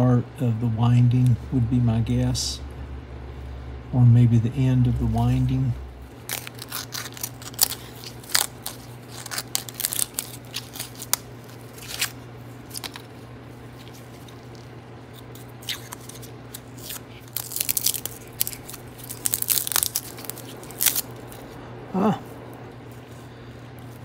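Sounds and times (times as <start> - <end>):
steady low hum: 0.0 - 24.0
paper crackling and tearing: 6.2 - 21.6.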